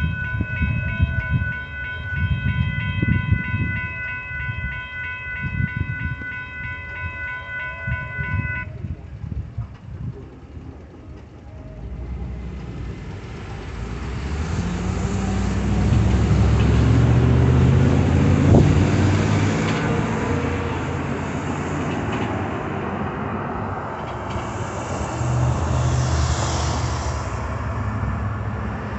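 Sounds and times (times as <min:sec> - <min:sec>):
cars driving past: 0:10.4 - 0:28.9.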